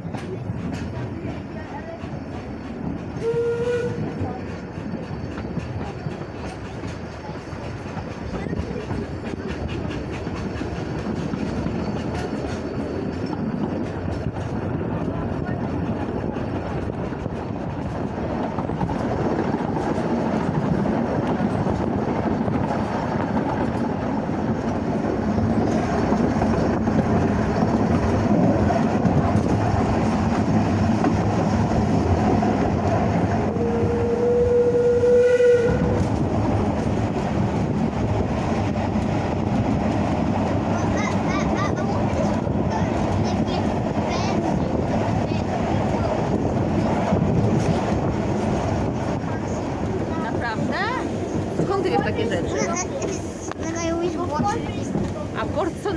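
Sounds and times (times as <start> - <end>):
steam train rumble and wheel clatter: 0.0 - 55.9
steam whistle blast: 3.2 - 4.0, 33.6 - 36.0.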